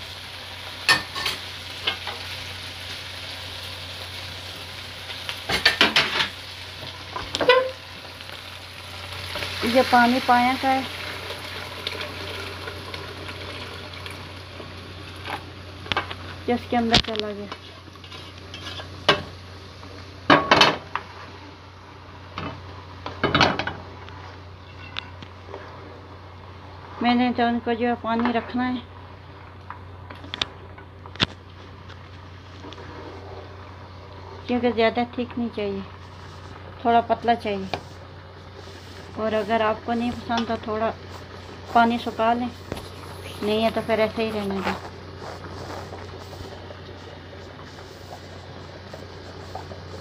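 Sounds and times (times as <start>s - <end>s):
meat sizzling in a pan: 0.0s - 26.8s, 36.0s - 50.0s
spoon scraping a pan: 17.5s - 19.2s, 24.6s - 25.8s, 37.7s - 50.0s
spoon scraping and knocking pan: 17.5s - 19.3s.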